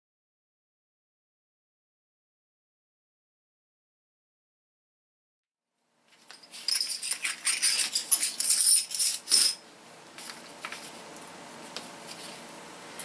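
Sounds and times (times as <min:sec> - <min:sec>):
metal washers clinking: 0:06.3 - 0:09.6.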